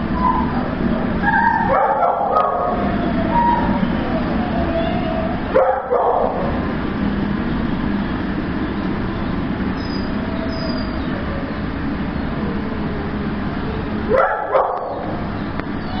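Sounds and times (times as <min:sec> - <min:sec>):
dog yelps rising in pitch: 0:00.2 - 0:00.6, 0:01.2 - 0:06.4
dogs barking: 0:00.2 - 0:06.6, 0:14.0 - 0:16.0.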